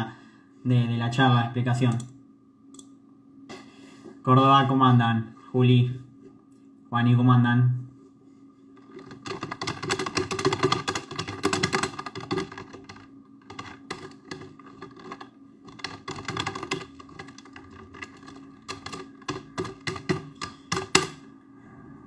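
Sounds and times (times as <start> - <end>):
keyboard typing clicks: 8.8 - 21.2.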